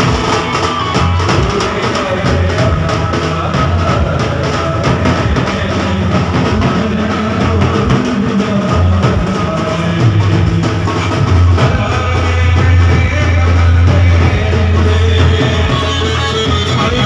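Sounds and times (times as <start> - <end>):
drum beat: 0.0 - 17.0
live band music: 0.0 - 17.0.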